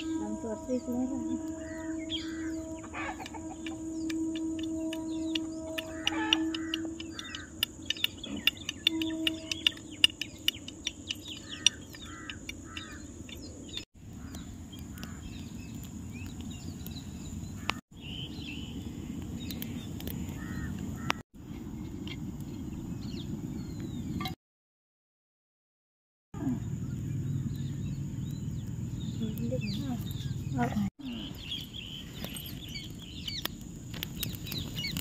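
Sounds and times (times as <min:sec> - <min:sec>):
birds calling: 0:00.0 - 0:24.4, 0:26.4 - 0:35.0
sharp clicks: 0:04.1 - 0:13.8
crow-like caws: 0:05.8 - 0:07.6, 0:11.4 - 0:13.1, 0:14.1 - 0:15.3, 0:20.4 - 0:21.2.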